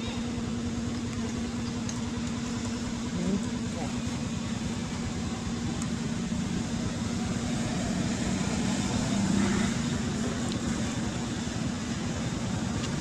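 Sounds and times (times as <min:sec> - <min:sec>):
steady motor hum: 0:00.0 - 0:13.0.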